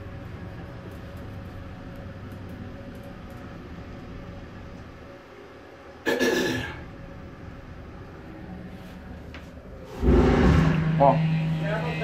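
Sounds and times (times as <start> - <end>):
elevator hum and rumble: 0.0 - 12.0
sudden loud burst: 10.0 - 11.8.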